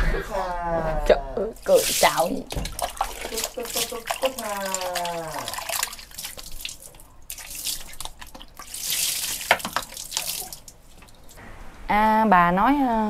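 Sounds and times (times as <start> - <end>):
water splashing into a sink: 1.6 - 11.4.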